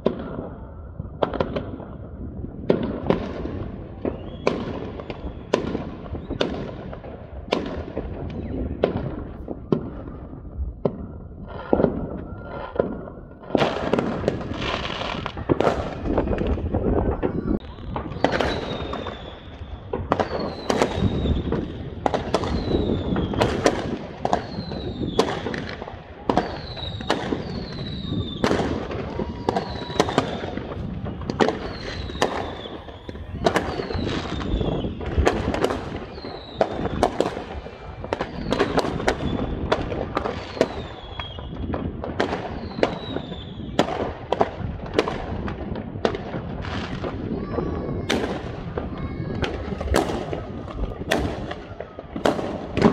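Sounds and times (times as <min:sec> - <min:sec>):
rumble of explosions: 0:00.0 - 0:52.9
firework falling whistle: 0:04.0 - 0:06.8, 0:08.1 - 0:43.9.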